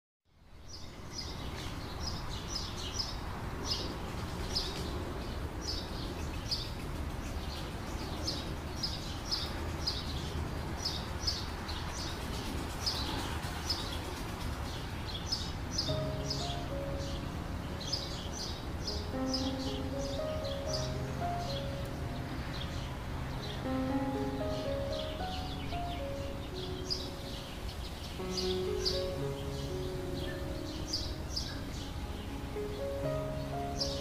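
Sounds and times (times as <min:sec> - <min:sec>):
low outdoor background noise: 0:00.3 - 0:34.0
small birds chirping: 0:00.3 - 0:34.0
music notes: 0:15.9 - 0:34.0.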